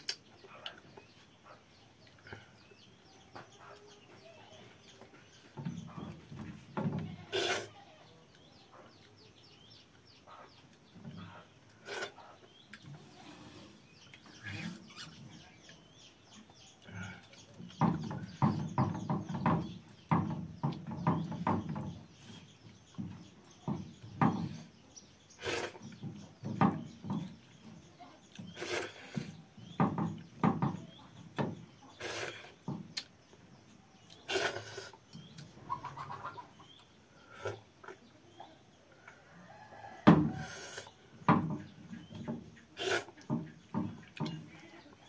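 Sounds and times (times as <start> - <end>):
hens clucking: 34.1 - 38.2.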